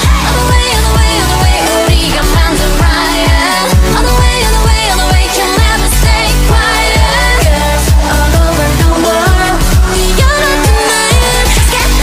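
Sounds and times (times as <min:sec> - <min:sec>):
electronic dance music: 0:00.0 - 0:12.0.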